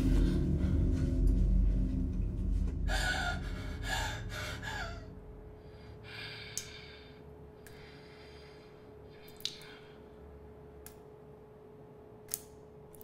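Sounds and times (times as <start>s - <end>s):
low rumbling drone: 0.0s - 8.9s
woman gasping for breath: 2.9s - 5.1s.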